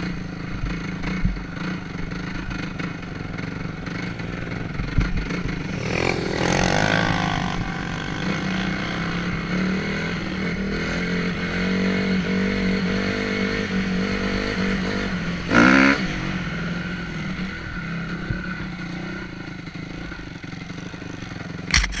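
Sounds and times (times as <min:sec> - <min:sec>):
dirt bike engine under throttle: 0:00.8 - 0:22.0
engine rev rising in pitch: 0:05.4 - 0:10.4.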